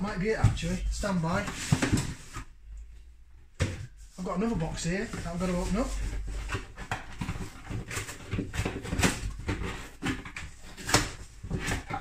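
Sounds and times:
cardboard box rustling and scraping: 0:04.0 - 0:12.0.

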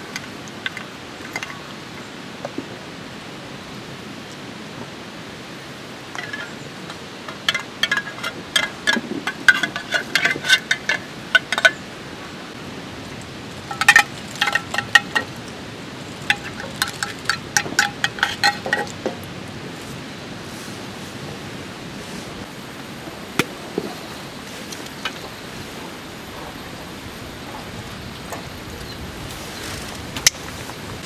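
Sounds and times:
metal spoon clinking in tin can: 0:16.3 - 0:19.0.

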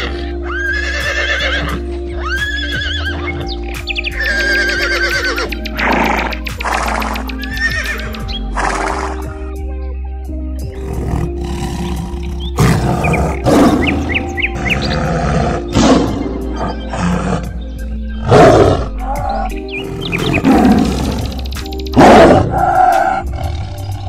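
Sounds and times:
background music: 0:00.0 - 0:24.0
tiger roaring and growling: 0:10.8 - 0:17.6, 0:18.2 - 0:24.0.

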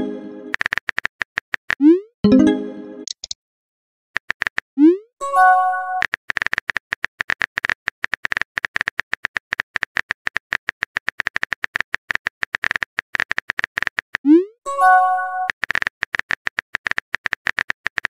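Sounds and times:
message sent chime: 0:02.2 - 0:03.0
keyboard tap clicks: 0:03.1 - 0:03.4.

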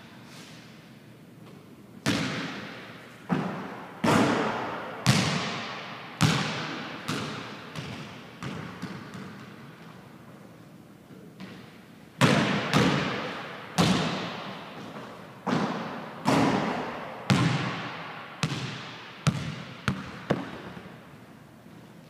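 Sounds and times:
basketball bouncing on wooden floor: 0:05.0 - 0:09.6, 0:12.2 - 0:14.5, 0:15.4 - 0:20.9.

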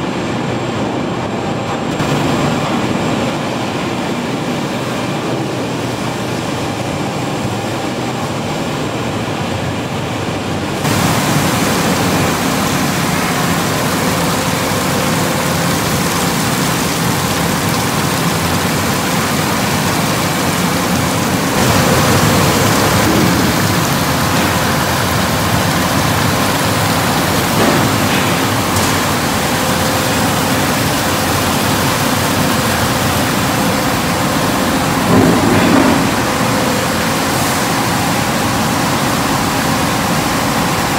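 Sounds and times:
conveyor belt drives humming: 0:00.0 - 0:40.9
rushing hiss of water and steam: 0:10.8 - 0:40.9.

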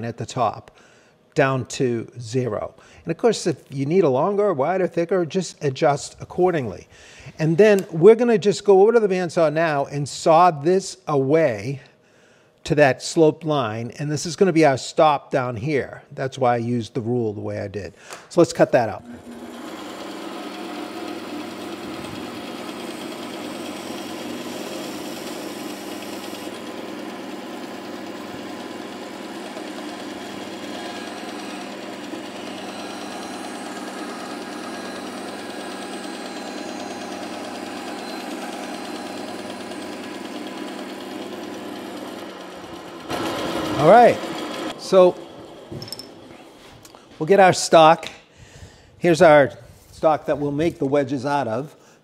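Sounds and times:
bandsaw cutting wood: 0:18.8 - 0:46.6.

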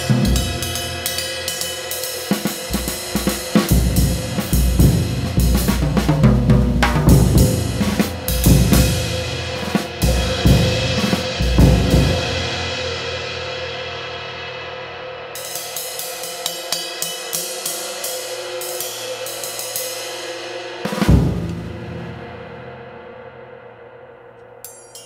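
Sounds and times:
ride cymbal struck with stick: 0:00.0 - 0:14.0, 0:15.4 - 0:23.2, 0:24.6 - 0:25.0
drum hits: 0:02.7 - 0:12.2, 0:21.1 - 0:22.3.

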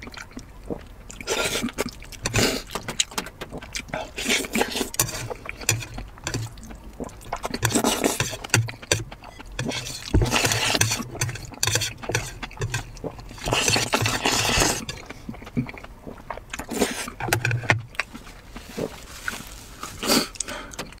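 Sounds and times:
person chewing: 0:00.0 - 0:21.0
person slurping noodles: 0:01.2 - 0:02.8, 0:03.9 - 0:08.6, 0:09.6 - 0:15.8, 0:16.6 - 0:17.7, 0:18.6 - 0:20.5.

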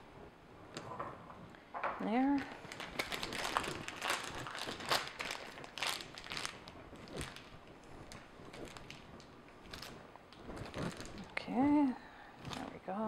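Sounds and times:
plastic bag crinkling: 0:02.2 - 0:11.5, 0:12.4 - 0:12.9.

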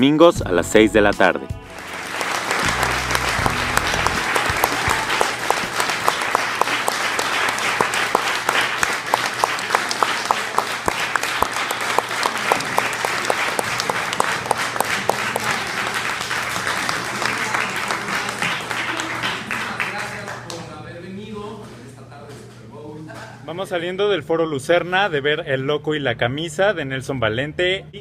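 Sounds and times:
audience applauding: 0:01.7 - 0:20.7
sharp nearby claps: 0:01.8 - 0:20.7.

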